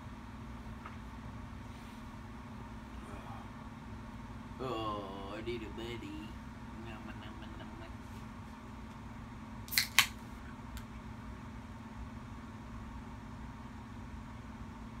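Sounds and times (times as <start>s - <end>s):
low hum: 0.0s - 15.0s
lizard jaws crunching worm: 9.7s - 10.2s.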